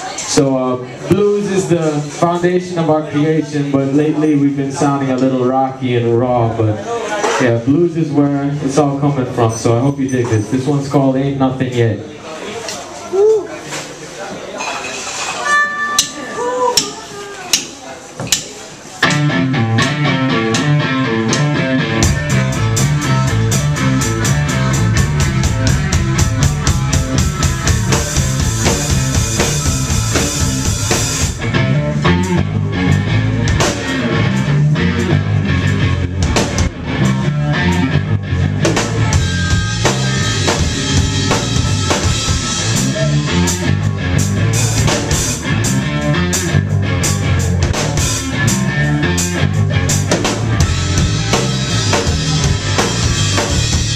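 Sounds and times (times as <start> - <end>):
drum kit: 18.3 - 53.9
electric bass: 19.0 - 53.9
electric guitar: 19.0 - 53.9
blues harmonica: 39.1 - 43.6.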